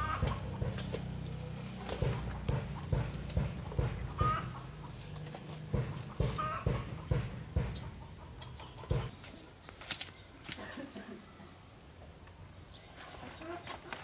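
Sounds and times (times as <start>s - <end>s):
chickens clucking: 0.0s - 9.4s
knocks: 2.0s - 4.6s, 5.6s - 8.0s, 8.9s - 9.1s.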